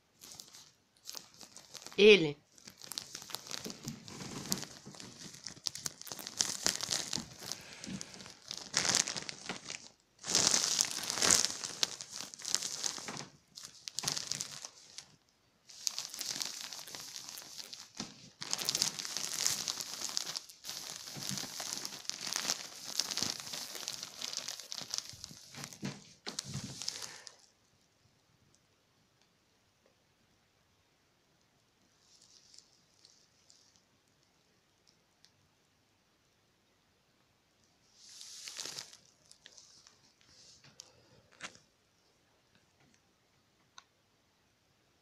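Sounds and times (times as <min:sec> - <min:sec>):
plastic packaging crinkling: 0:00.0 - 0:27.5, 0:32.0 - 0:33.8, 0:38.0 - 0:41.7.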